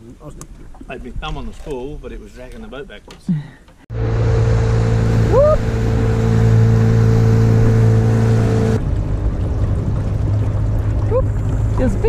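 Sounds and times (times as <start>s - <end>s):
outboard motor humming: 3.9s - 12.0s.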